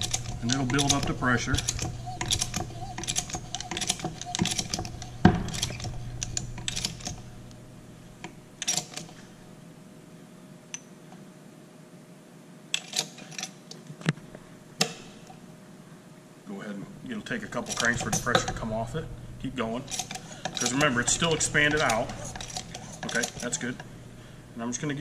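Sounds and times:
hand pump lever clicking: 0.0s - 7.3s, 17.6s - 18.7s, 19.9s - 23.9s.

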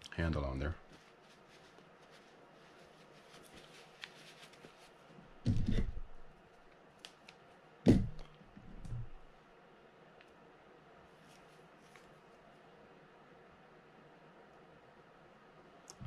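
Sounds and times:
paper towel rustling: 0.6s - 6.3s
loud dull thumps: 5.4s - 6.2s, 7.9s - 8.2s.

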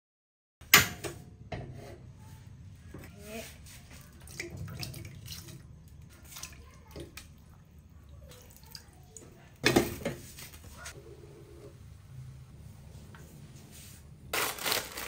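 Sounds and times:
ingredients splashing into water: 4.1s - 10.0s.

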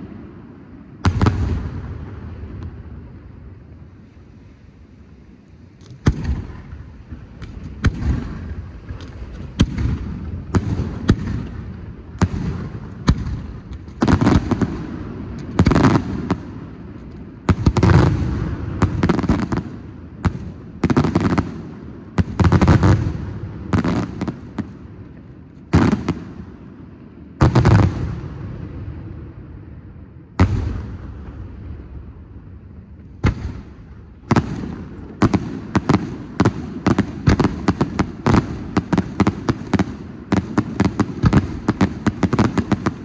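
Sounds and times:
firework bursts: 0.0s - 26.6s, 30.2s - 43.0s
firework cracks: 5.4s - 26.4s, 30.4s - 43.0s.

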